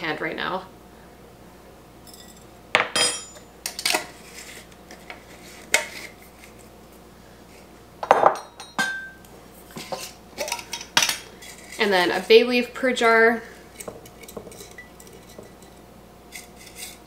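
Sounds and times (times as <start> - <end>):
metal spoons and glass jars clinking: 2.0 - 4.0, 13.8 - 17.0.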